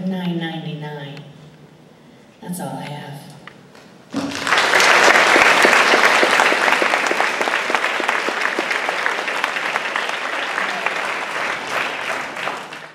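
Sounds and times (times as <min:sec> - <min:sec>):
audience applauding: 0:04.2 - 0:12.9.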